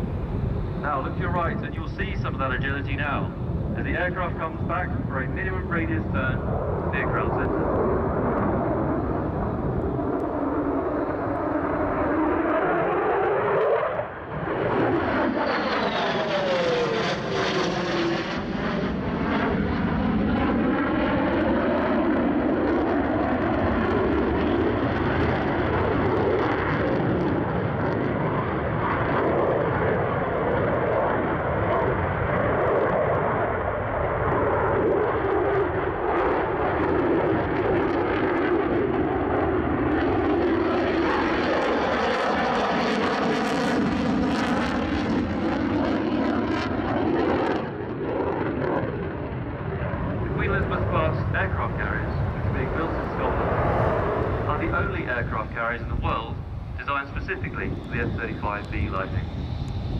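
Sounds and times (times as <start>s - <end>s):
jet flying past: 0.0s - 59.9s.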